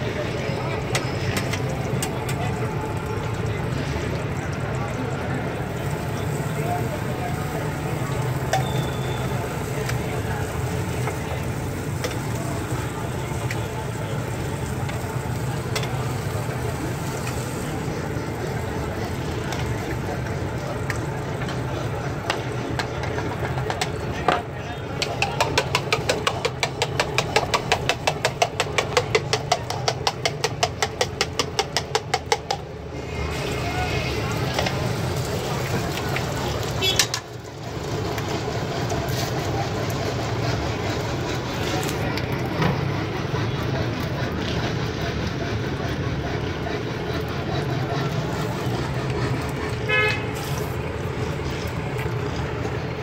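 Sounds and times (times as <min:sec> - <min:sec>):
low hum of street traffic: 0:00.0 - 0:53.0
whisk clicking against metal can: 0:25.0 - 0:32.7
vehicle horn toot: 0:36.8 - 0:37.1, 0:49.9 - 0:50.3.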